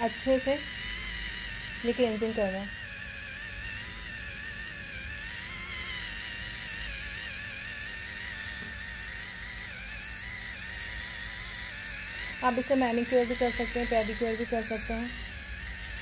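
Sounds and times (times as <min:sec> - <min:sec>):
face massager motor whine: 0:00.0 - 0:16.0.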